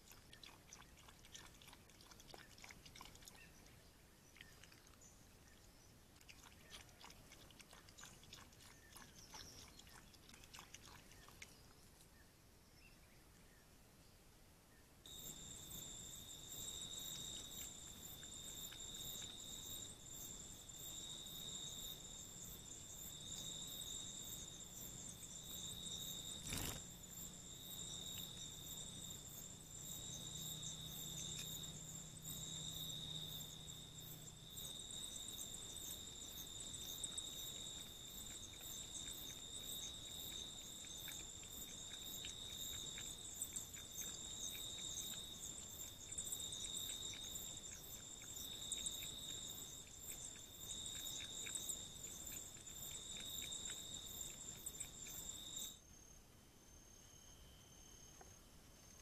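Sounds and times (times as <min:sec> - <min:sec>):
insect chorus trilling: 0:15.1 - 0:55.8
faint small ticks: 0:16.6 - 0:55.8.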